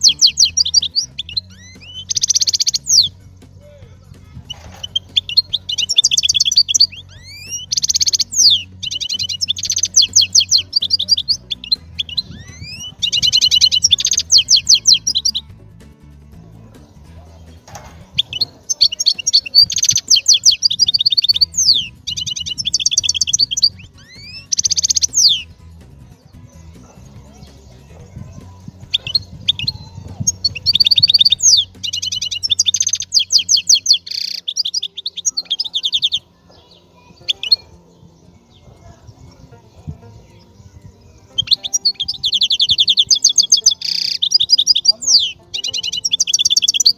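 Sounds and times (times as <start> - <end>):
songbird singing: 0.0 - 46.9.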